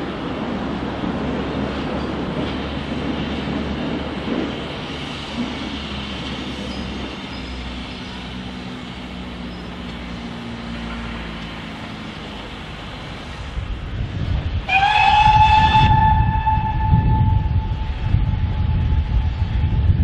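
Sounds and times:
low rumble: 0:13.5 - 0:20.0
steam locomotive whistle: 0:14.6 - 0:19.8.

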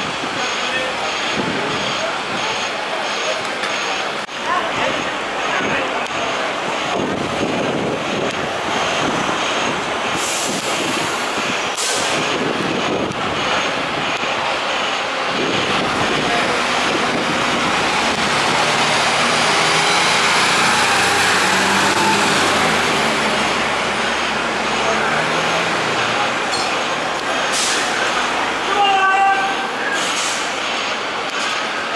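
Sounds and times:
street noise: 0:00.0 - 0:31.9
diesel engine driving past: 0:04.9 - 0:28.8
short air hisses: 0:10.2 - 0:11.1, 0:27.5 - 0:28.0, 0:29.9 - 0:30.5.

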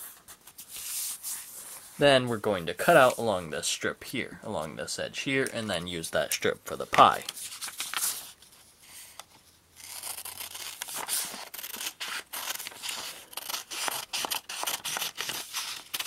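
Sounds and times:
scissors snipping paper: 0:09.8 - 0:16.0.

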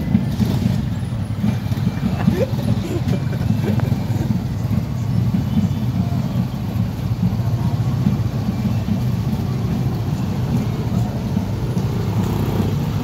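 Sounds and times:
motorcycle engines rumbling past: 0:00.0 - 0:13.0.

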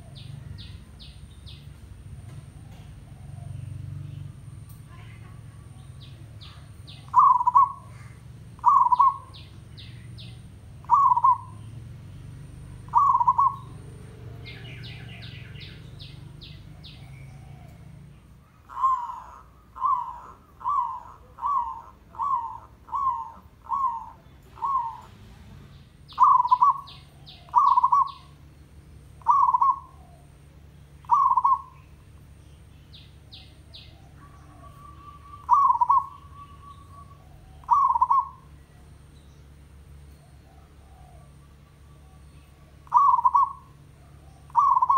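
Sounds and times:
dove cooing: 0:00.0 - 0:25.4, 0:26.1 - 0:32.3, 0:32.9 - 0:39.1, 0:40.1 - 0:44.9
high bird chirps: 0:04.0 - 0:12.2, 0:12.8 - 0:17.8, 0:18.6 - 0:25.2, 0:25.8 - 0:28.6, 0:29.2 - 0:30.3, 0:30.9 - 0:39.5, 0:41.4 - 0:43.8, 0:44.4 - 0:44.9.

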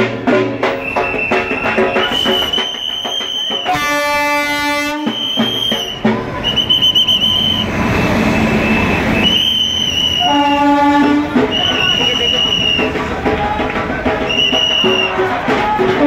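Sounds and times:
train rumbling past: 0:00.0 - 0:16.0
locomotive horn blast: 0:03.4 - 0:13.0
shrill high tone: 0:05.0 - 0:13.0.

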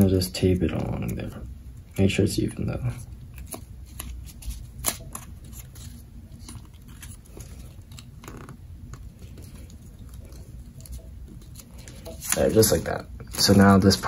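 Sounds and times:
faint low hum: 0:00.0 - 0:14.0
paper crinkle: 0:02.9 - 0:14.0
paper rustling and clicking: 0:03.4 - 0:14.0.

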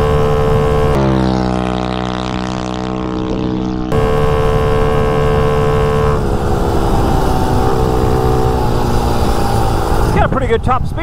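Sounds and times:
motorbike engine at high revs: 0:00.0 - 0:10.6
wind rush: 0:06.2 - 0:11.0.

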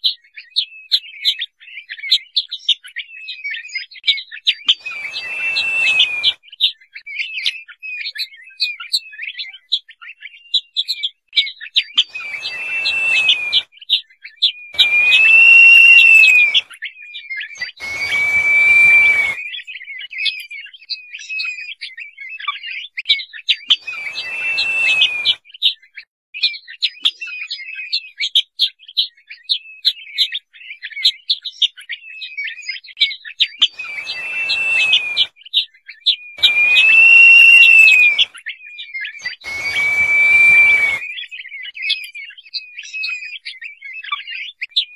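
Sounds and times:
bird whistling call: 0:04.7 - 0:06.4, 0:12.0 - 0:13.7, 0:14.8 - 0:16.8, 0:17.5 - 0:19.7, 0:23.8 - 0:25.4, 0:33.6 - 0:35.3, 0:36.4 - 0:38.4, 0:39.1 - 0:41.5
quick chirping notes: 0:12.2 - 0:13.6, 0:14.8 - 0:16.6, 0:17.8 - 0:19.4, 0:23.9 - 0:25.3, 0:33.8 - 0:35.2, 0:36.4 - 0:38.3, 0:39.4 - 0:41.0.

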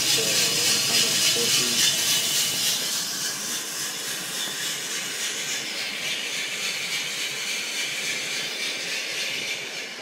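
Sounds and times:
coffee roaster rushing hiss: 0:00.0 - 0:10.0.

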